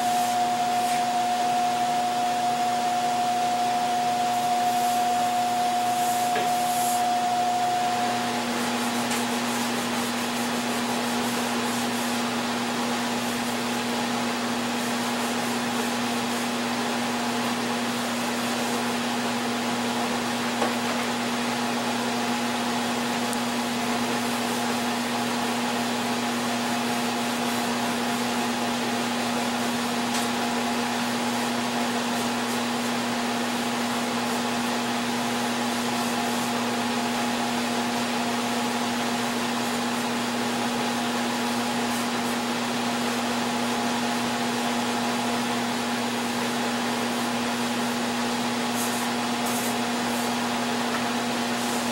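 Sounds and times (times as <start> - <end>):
electric motor humming with air rush: 0.0 - 51.9.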